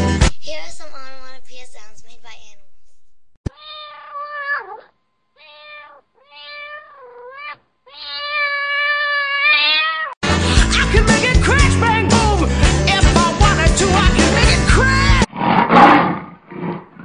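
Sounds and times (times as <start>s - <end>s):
cat meowing: 3.5s - 10.2s
loud music with roaring: 10.2s - 15.2s.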